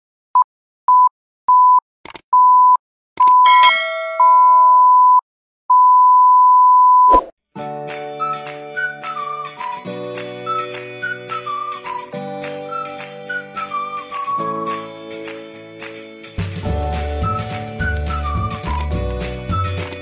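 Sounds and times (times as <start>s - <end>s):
ringing chime: 3.5s - 4.6s
electronic beep tone: 4.2s - 7.3s
background music: 7.6s - 20.0s.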